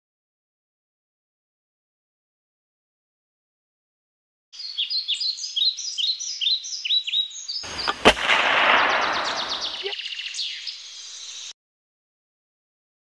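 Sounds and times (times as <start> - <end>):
birds chirping: 4.6 - 11.5
sharp gunshot-like crack: 7.6 - 9.9.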